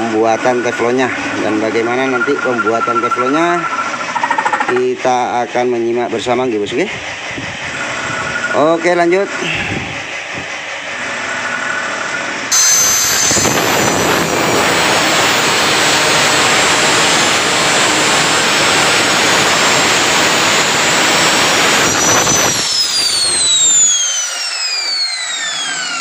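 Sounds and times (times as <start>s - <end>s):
angle grinder grinding steel: 0.0s - 5.0s, 12.5s - 26.0s.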